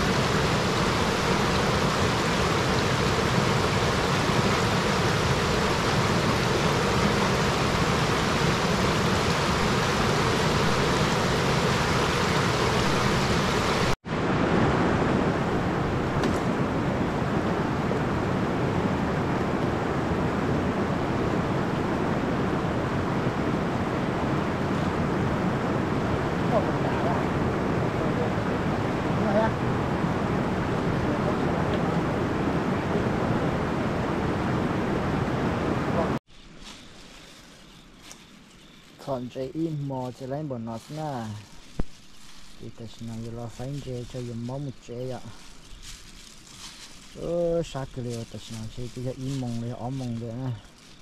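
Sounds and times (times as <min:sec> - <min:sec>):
river water rushing over rocks: 0:00.0 - 0:16.1.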